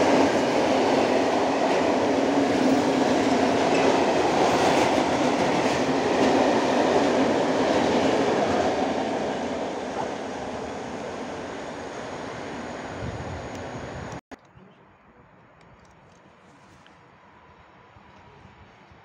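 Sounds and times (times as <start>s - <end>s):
steel train wheels on rails: 0.0s - 14.2s.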